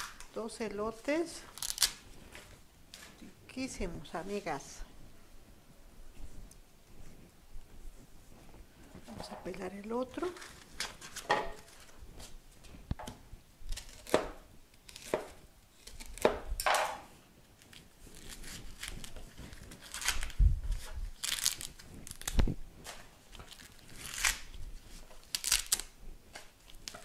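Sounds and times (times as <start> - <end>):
corn husks ripping: 1.5 - 2.0, 13.7 - 16.3, 17.6 - 26.0.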